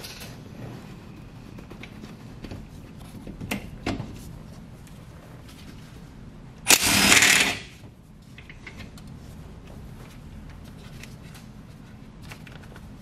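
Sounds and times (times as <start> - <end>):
impact wrench hammering: 6.7 - 7.7.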